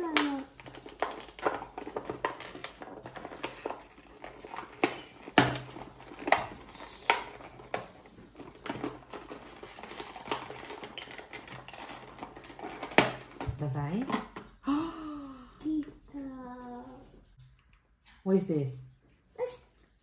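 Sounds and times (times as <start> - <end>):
toy packaging crinkling and clicking: 0.0 - 14.6.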